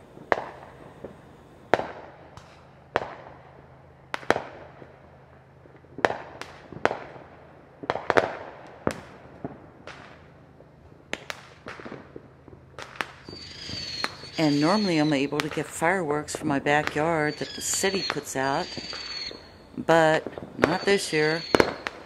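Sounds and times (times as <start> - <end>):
fireworks and firecrackers booming: 0.0 - 22.0.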